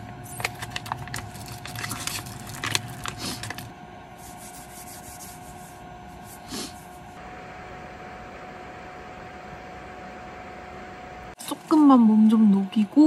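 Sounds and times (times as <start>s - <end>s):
faint steady hum: 0.0s - 13.0s
plastic pouch crinkling and crackling: 0.2s - 3.7s.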